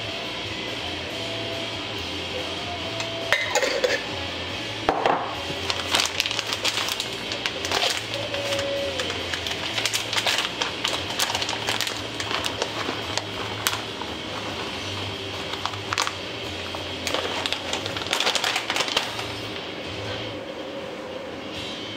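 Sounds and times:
plastic bag crinkling: 5.5 - 19.6.

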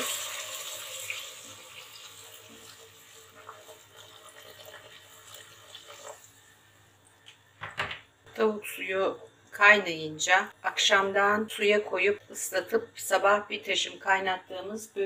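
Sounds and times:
broth pouring into a pot: 0.0 - 6.7.

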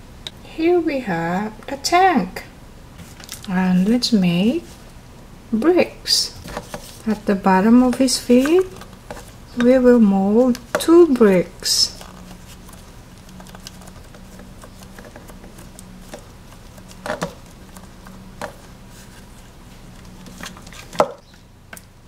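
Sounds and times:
faint low hum: 0.0 - 22.0
play dough patting and squishing: 5.6 - 22.0.

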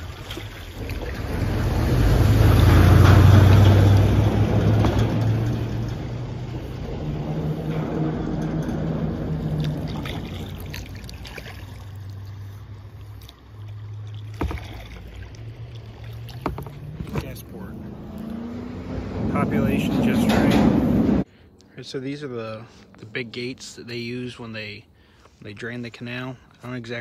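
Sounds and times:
car rumbling over bridge: 0.0 - 21.3.

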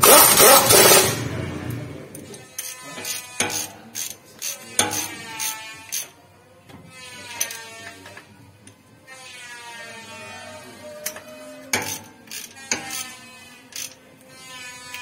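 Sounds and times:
ratchet wrench clicking: 2.6 - 6.1, 11.8 - 13.1, 13.7 - 14.0.

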